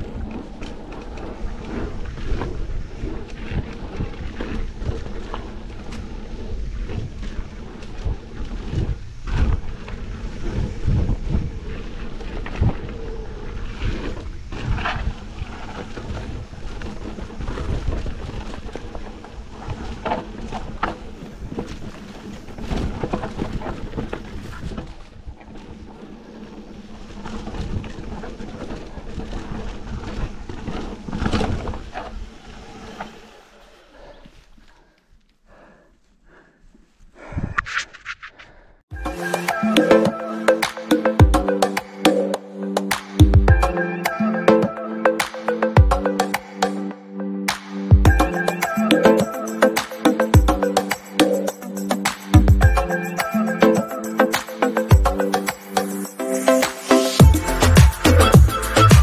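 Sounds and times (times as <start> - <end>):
wind buffeting microphone: 0.0 - 33.3
bike rattling over rocks: 0.0 - 33.7.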